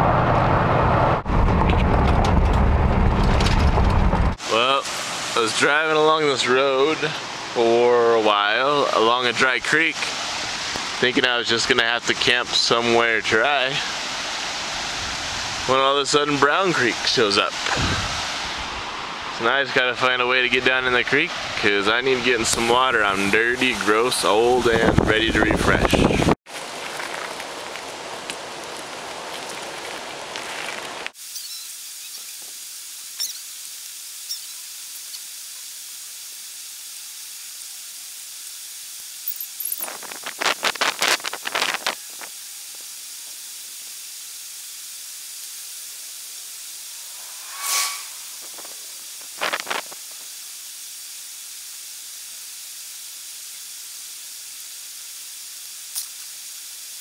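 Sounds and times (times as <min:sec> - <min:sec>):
creek water rushing: 0:04.4 - 0:24.6, 0:26.5 - 0:31.2.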